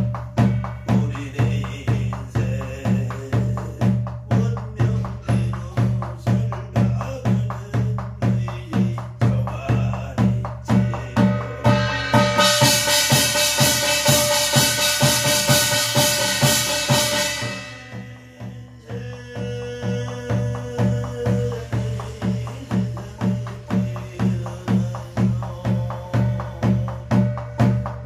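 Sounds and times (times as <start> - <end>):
metallic percussion ringing: 0.0 - 3.0, 10.7 - 25.3
barrel drum beaten: 0.0 - 28.0.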